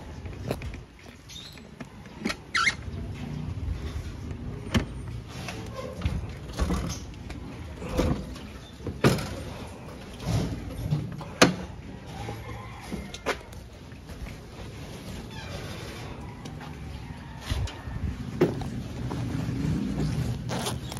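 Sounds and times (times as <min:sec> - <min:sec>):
road rumble: 0:15.9 - 0:20.9.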